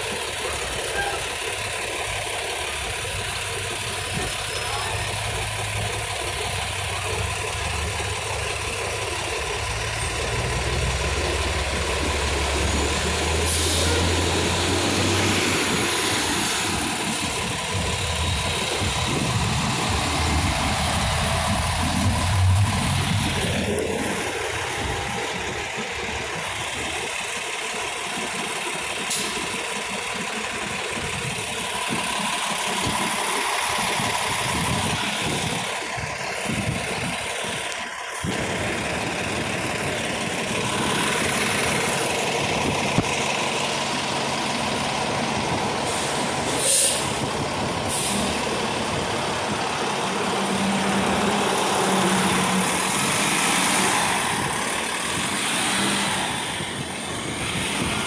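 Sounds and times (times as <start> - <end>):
bus engines idling: 0.0 - 58.0
street traffic noise: 0.0 - 58.0
loud air hiss: 45.8 - 47.2, 47.8 - 48.4.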